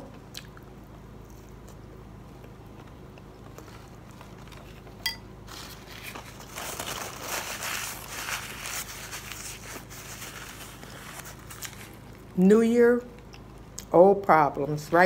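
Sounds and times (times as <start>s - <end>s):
paper napkin rustling: 3.5s - 12.3s.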